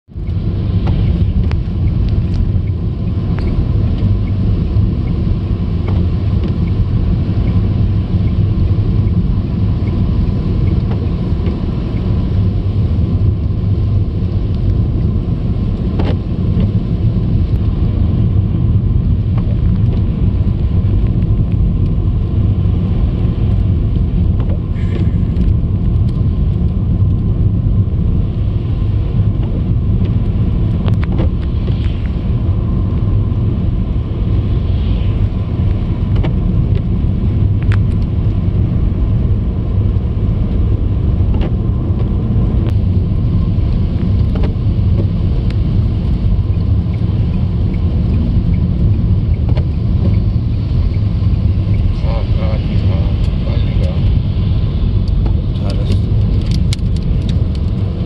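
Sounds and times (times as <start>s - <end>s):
car engine: 0.1s - 58.0s
tyres on slushy road: 0.3s - 58.0s.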